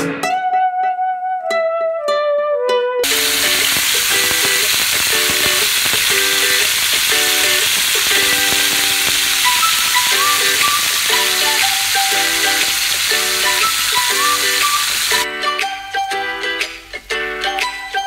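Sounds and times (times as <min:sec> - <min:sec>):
background music: 0:00.0 - 0:06.4, 0:07.3 - 0:18.0
chicken sizzling in hot oil: 0:03.0 - 0:15.2.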